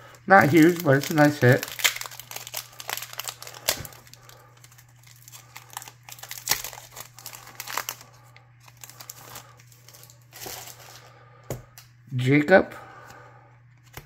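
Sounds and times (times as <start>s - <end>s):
plastic wrapper crinkling and tearing: 0.0s - 11.1s.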